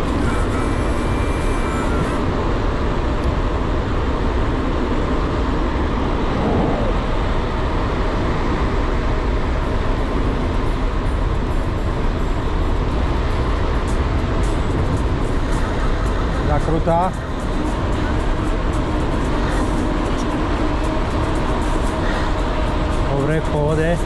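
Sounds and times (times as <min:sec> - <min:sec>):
wind buffeting microphone: 0:00.9 - 0:24.0.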